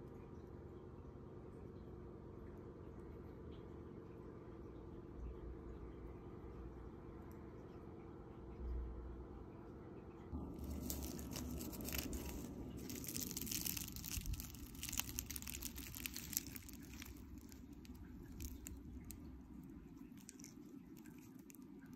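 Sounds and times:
pastry crackling and tearing: 10.4s - 21.9s.

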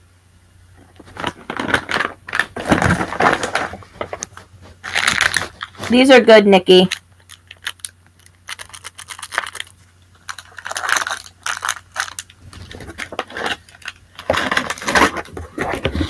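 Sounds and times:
packets crinkling and rustling: 0.8s - 16.0s
small items clicking and clinking: 6.8s - 15.1s.

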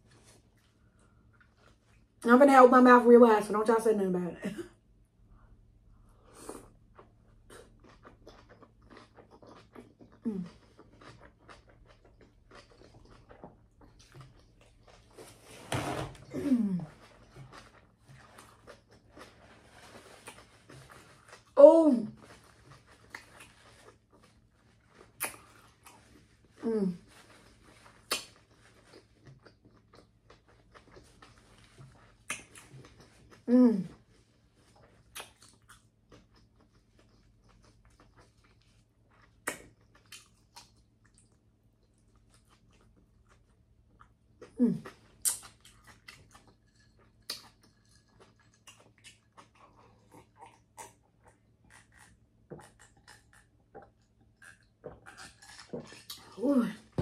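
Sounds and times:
person chewing food: 0.1s - 2.2s, 6.2s - 15.4s, 16.8s - 21.6s, 22.2s - 57.0s
wet mouth clicks and smacks: 25.2s - 25.5s, 28.1s - 28.4s
wet chewing smacks: 34.7s - 56.4s.

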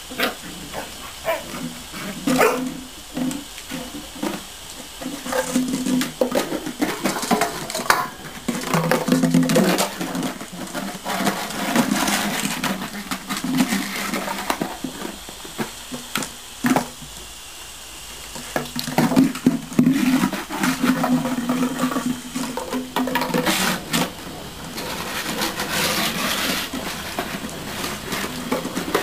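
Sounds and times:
puppies growling: 0.1s - 4.1s.

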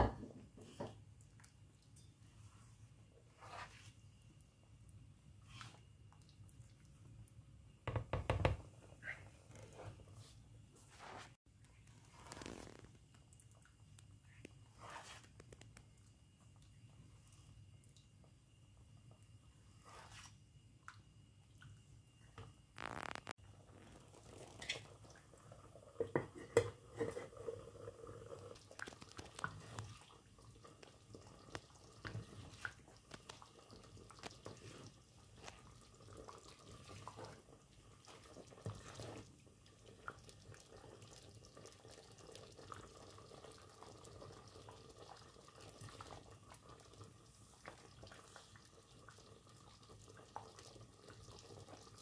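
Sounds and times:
thick curry bubbling: 22.8s - 52.0s.

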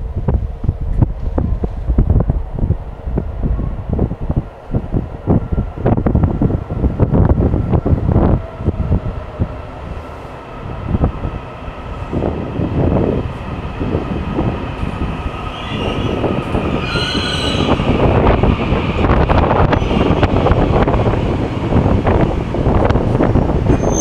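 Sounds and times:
train wheels rumbling and knocking: 0.0s - 24.0s
high squealing whine: 15.3s - 18.4s.

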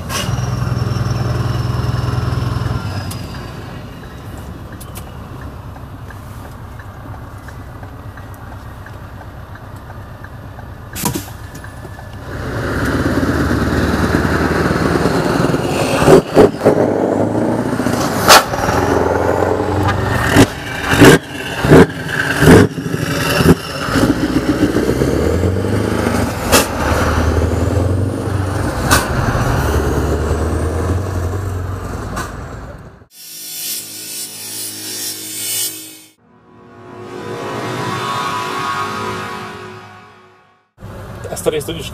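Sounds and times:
truck engine through loud exhaust: 0.0s - 33.1s
sharp loud exhaust cracks: 5.9s - 32.5s.

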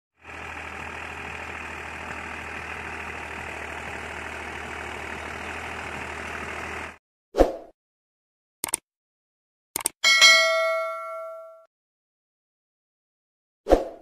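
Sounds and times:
tractor diesel engine running: 0.1s - 7.0s.

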